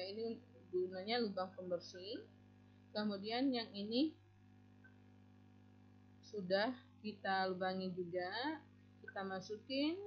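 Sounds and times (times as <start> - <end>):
person speaking: 0.0 - 2.3, 3.0 - 4.2, 6.3 - 10.0.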